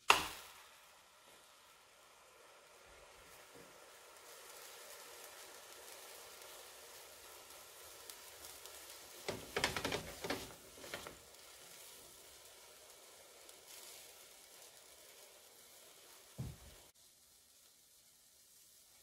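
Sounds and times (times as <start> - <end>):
pancake sizzling in butter: 0.0 - 19.0
spatula scraping and knocking pan: 9.1 - 11.3.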